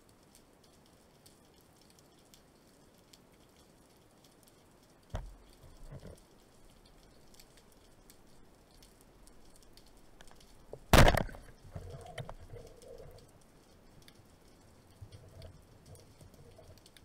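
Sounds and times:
faint clicks: 0.0s - 17.0s
speargun firing underwater: 10.8s - 11.6s.

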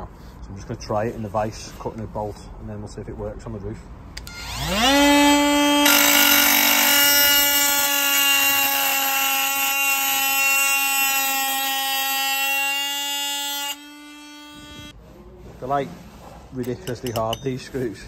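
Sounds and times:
oscillating multi-tool whine: 4.2s - 14.9s
blade grinding on metal screw: 5.8s - 14.9s.

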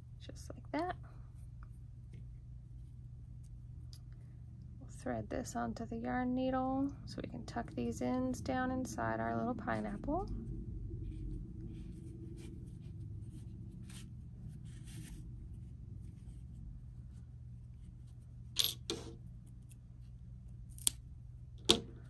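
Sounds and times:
low hum: 0.0s - 22.0s
rustle of yarn: 11.0s - 18.3s.

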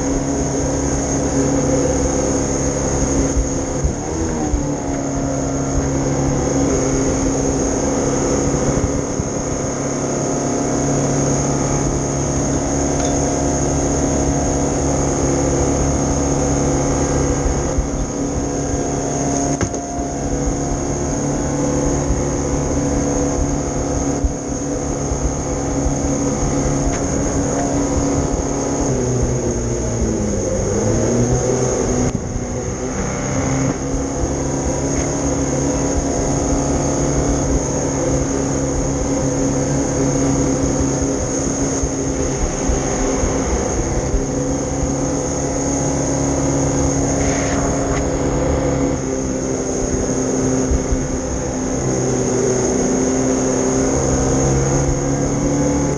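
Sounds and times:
boat engine running hard: 0.0s - 55.9s
water rushing past hull: 33.6s - 55.9s.

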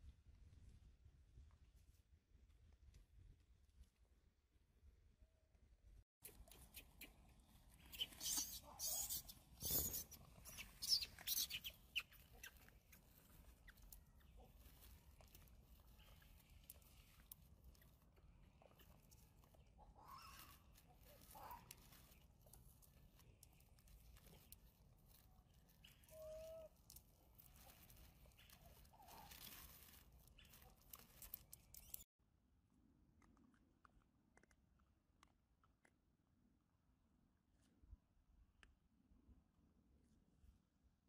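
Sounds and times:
crackling clicks: 30.3s - 32.1s.

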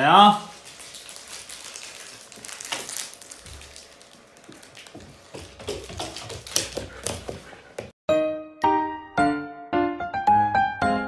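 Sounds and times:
dog claws scrabbling on wooden floor: 2.2s - 7.9s.

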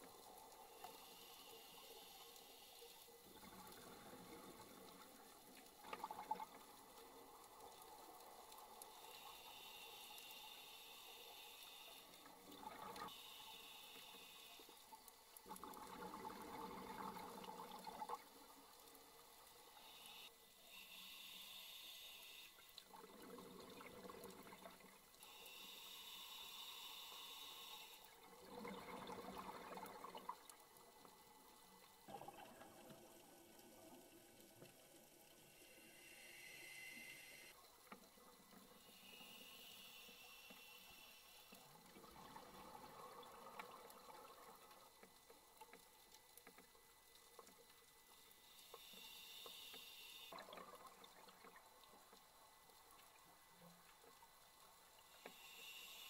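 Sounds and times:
regulator inhale hissing: 0.8s - 3.1s, 8.9s - 12.2s, 13.1s - 14.7s, 19.8s - 22.6s, 25.2s - 28.1s, 35.5s - 37.5s, 38.8s - 41.6s, 48.4s - 50.4s, 55.2s - 56.0s.

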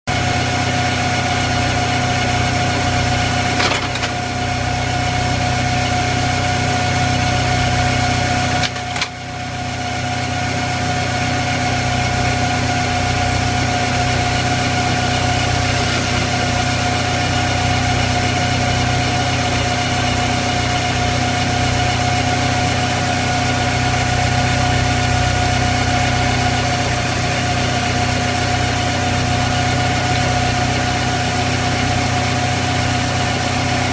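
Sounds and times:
machine hum with whine: 0.1s - 33.9s.

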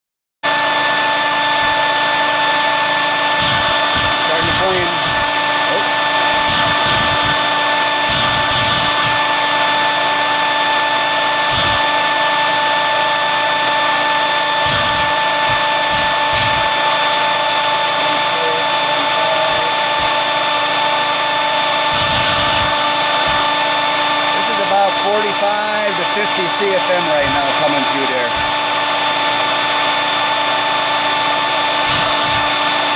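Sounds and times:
blower whining: 0.5s - 32.9s
rush of venting gas: 3.0s - 10.7s.

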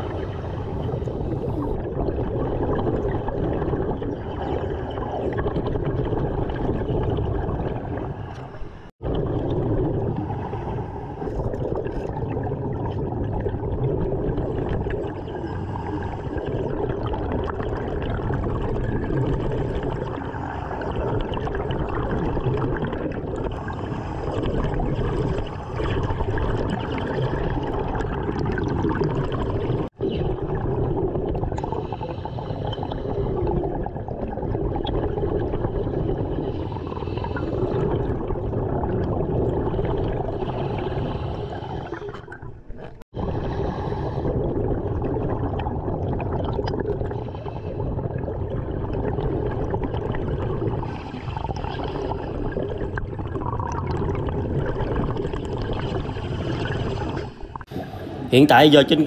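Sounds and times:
air bubbling underwater: 0.0s - 59.0s
diver breathing through regulator: 31.6s - 33.4s, 40.4s - 42.3s, 43.2s - 44.6s.

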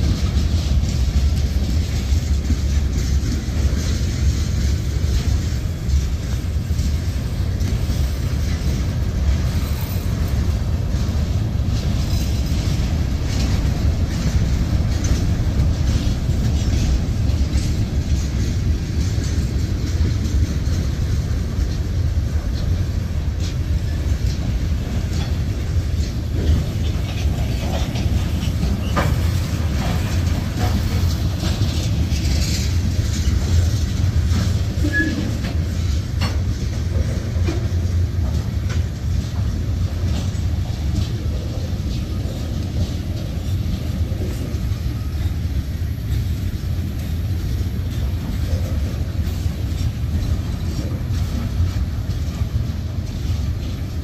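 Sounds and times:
freight train wheels rumbling on rails: 0.0s - 54.0s
wheels clanking over rail joints: 0.0s - 54.0s.

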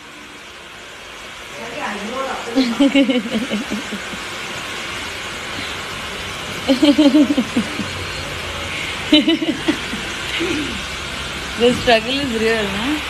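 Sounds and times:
steady hissing noise: 0.0s - 13.0s
person speaking: 2.4s - 4.2s.

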